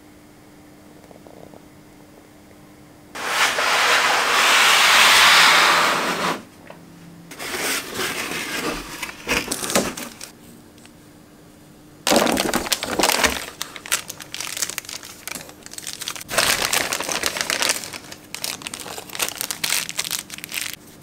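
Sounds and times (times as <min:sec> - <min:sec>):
loud rushing hiss: 0:03.2 - 0:06.5
cardboard and plastic handling: 0:07.3 - 0:10.3, 0:12.1 - 0:20.8.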